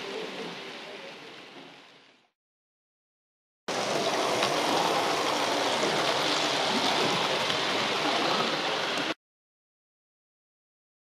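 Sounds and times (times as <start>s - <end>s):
model trains rolling on track: 3.7s - 9.2s.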